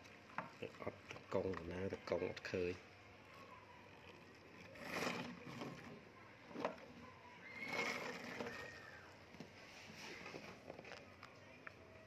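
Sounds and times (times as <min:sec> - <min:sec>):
plastic toy rustling and clattering: 0:04.6 - 0:11.2.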